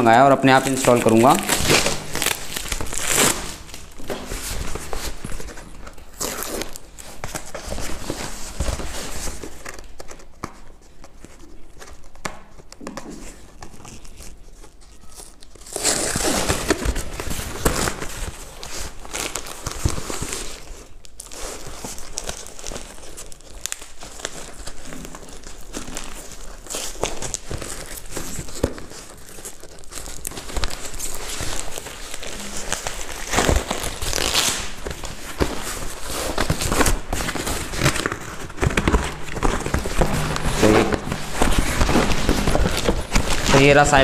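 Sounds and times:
packing tape tearing: 0.0s - 44.0s
paper crumpling: 0.0s - 44.0s.

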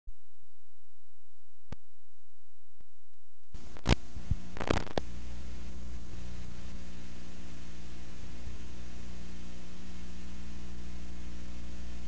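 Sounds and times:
low hum: 0.1s - 12.0s
tape hiss: 0.1s - 12.0s
pops and crackles: 2.8s - 5.1s.

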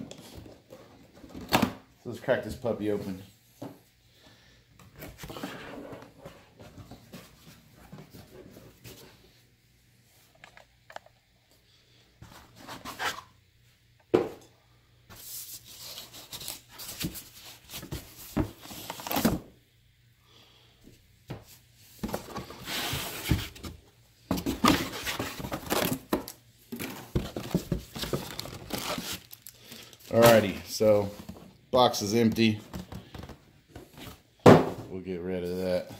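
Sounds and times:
rustling packaging: 24.4s - 34.2s.

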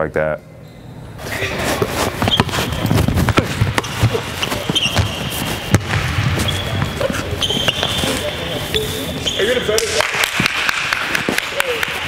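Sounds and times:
sneakers squeaking: 0.5s - 9.8s
basketball bouncing on wooden floor: 2.2s - 8.0s.

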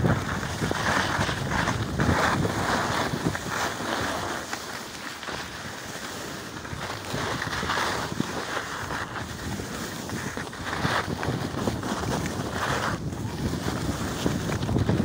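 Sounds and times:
wind rushing over microphone: 0.0s - 4.5s, 5.2s - 15.0s
skis scraping on hard snow: 0.0s - 15.0s.

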